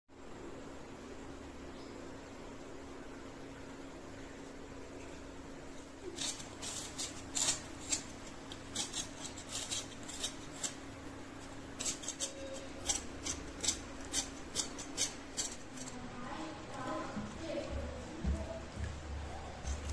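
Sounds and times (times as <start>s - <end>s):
faint steady hum: 0.1s - 19.9s
peeler scraping potato skin: 6.0s - 16.1s.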